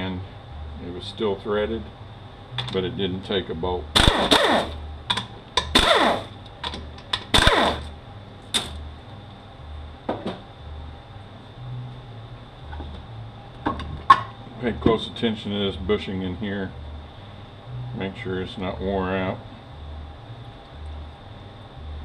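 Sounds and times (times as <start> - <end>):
power ratchet spinning: 4.0 - 4.8, 5.6 - 6.4, 7.3 - 7.9.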